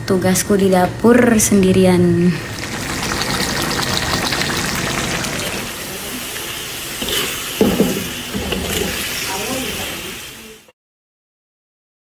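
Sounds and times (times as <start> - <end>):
meat sizzling and bubbling in oil: 2.4 - 10.6.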